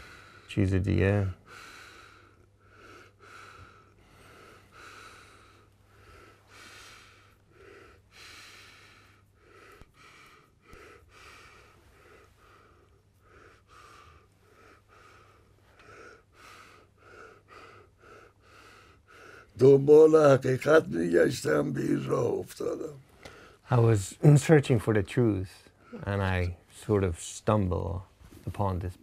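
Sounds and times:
elderly man breathing: 0.0 - 0.6, 1.2 - 23.7.

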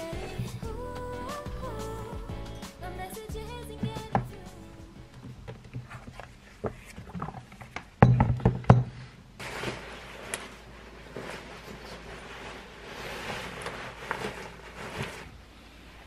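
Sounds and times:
padded jacket rustling: 9.4 - 15.5.

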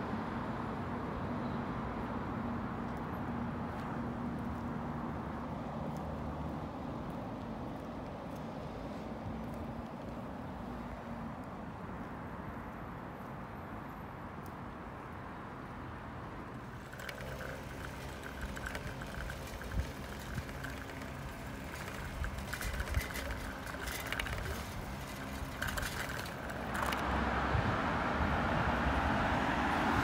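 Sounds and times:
distant traffic hum: 0.0 - 30.0
road traffic rushing: 0.0 - 30.0.

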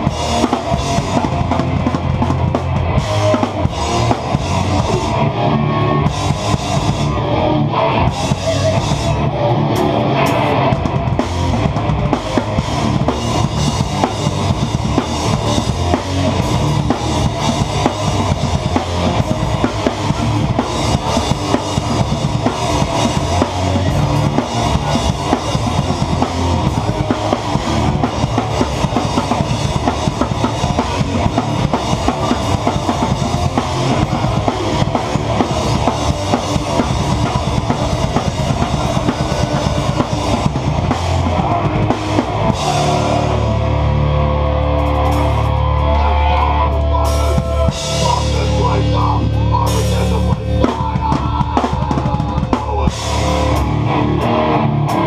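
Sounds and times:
hardcore band playing live: 0.0 - 55.0.

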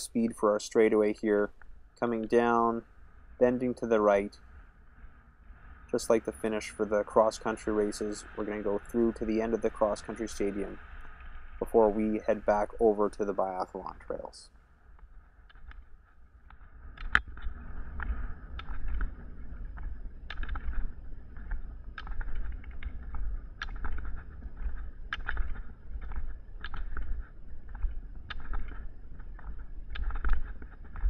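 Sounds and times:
low rumble: 0.0 - 31.0
rolling wheels hissing: 2.1 - 14.5
ski pole tips clicking on asphalt: 14.9 - 31.0.

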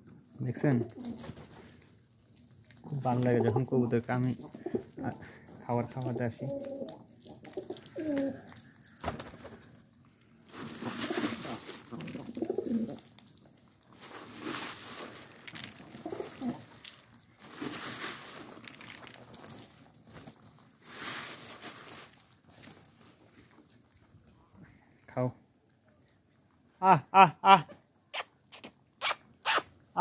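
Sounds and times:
birds pecking on concrete: 0.1 - 24.2
pigeons cooing: 4.3 - 5.3, 6.0 - 8.5, 10.9 - 13.0, 16.0 - 16.6.

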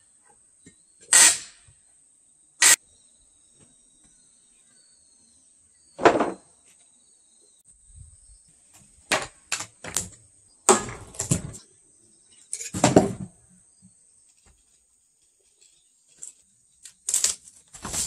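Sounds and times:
wooden boards crashing down: 6.0 - 6.4, 10.7 - 11.6, 12.8 - 13.4.

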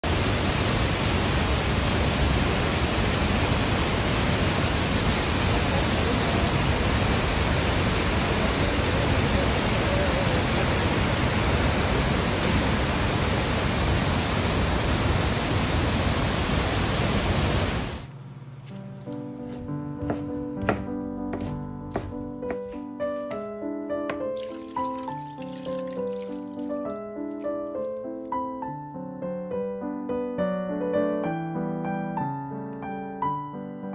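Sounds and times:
waterfall rushing into pool: 0.0 - 18.1, 24.4 - 28.0.

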